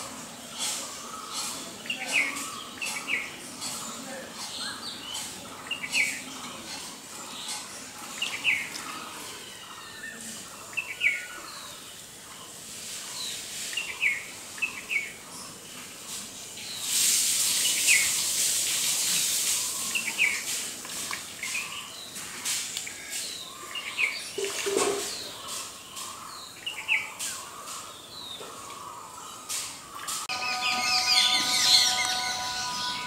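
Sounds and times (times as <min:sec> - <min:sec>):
wild birds chirping: 0:00.0 - 0:18.4, 0:19.1 - 0:33.0
steady high hiss: 0:10.1 - 0:24.3, 0:25.4 - 0:33.0
steady even-pitched tones: 0:30.3 - 0:33.0.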